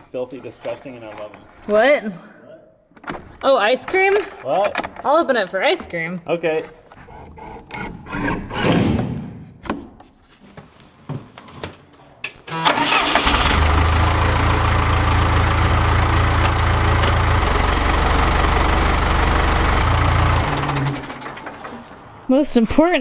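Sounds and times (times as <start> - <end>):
diesel engine starting and running: 12.5 - 22.3.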